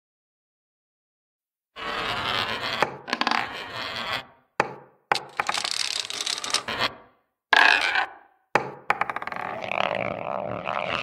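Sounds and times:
dominoes clattering: 5.2 - 6.7.

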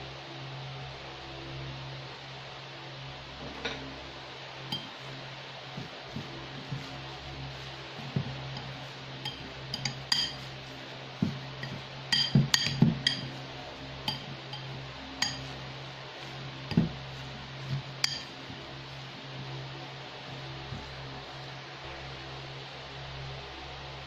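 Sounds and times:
fork clinking against ceramic bowl: 4.7 - 4.9, 8.6 - 10.5, 11.6 - 13.3, 14.1 - 15.5, 18.0 - 18.4.

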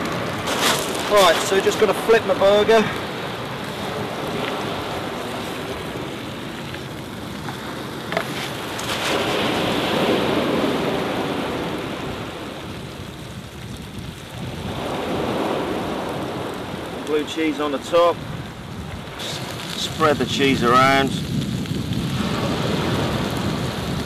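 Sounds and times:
waves washing on shingle: 0.0 - 24.0
burger sizzling in a frying pan: 12.6 - 24.0.

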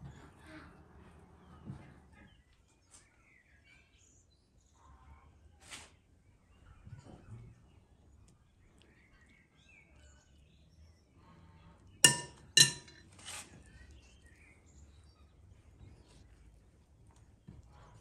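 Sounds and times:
faint birdsong: 0.0 - 18.0
spoon clinking glass bowl: 12.0 - 13.0.

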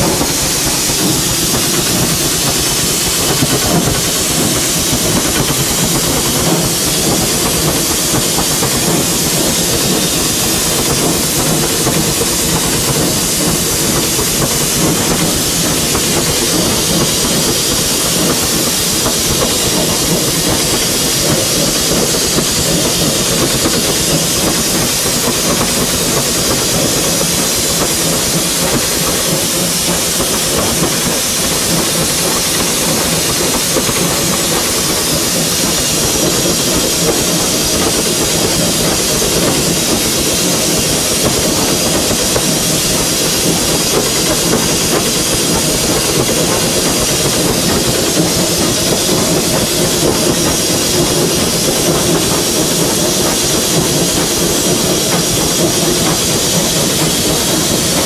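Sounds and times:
steam hiss: 0.0 - 58.0
wheel and rail noise: 0.0 - 58.0.

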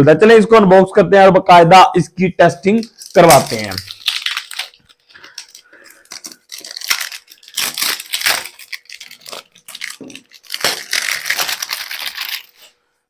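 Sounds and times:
packaging rustling and crinkling: 2.7 - 12.8.

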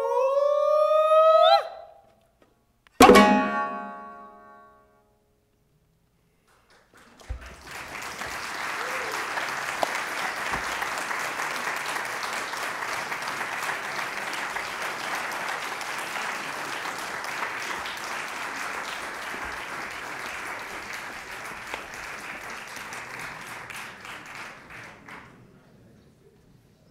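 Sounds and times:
audience applauding: 6.5 - 25.6.

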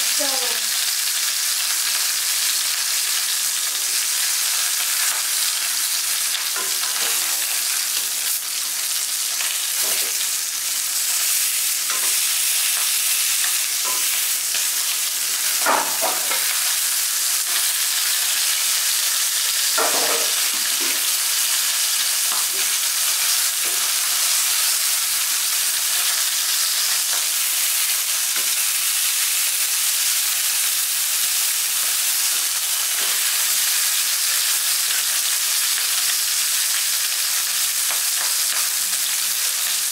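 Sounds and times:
fish sizzling in hot oil: 0.0 - 39.9.

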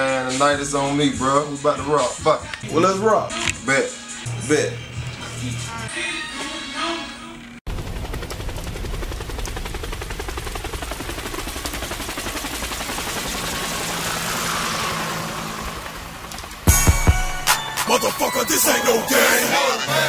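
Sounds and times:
helicopter engine noise: 7.7 - 18.3
helicopter rotor chop: 7.7 - 18.3.

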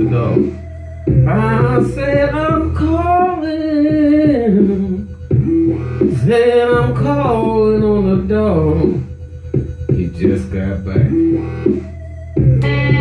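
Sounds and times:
man singing into microphone: 1.2 - 5.1, 6.2 - 9.0
electric guitar: 12.6 - 13.0.

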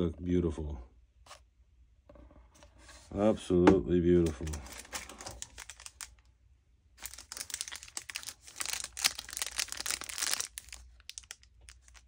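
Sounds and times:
cellophane crinkling: 4.2 - 6.3, 7.0 - 12.0.

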